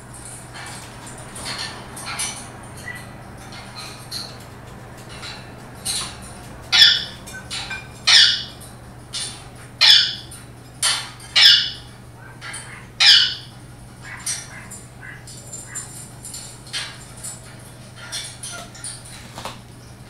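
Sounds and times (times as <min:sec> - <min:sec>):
parrot squawking: 0:06.7 - 0:15.9.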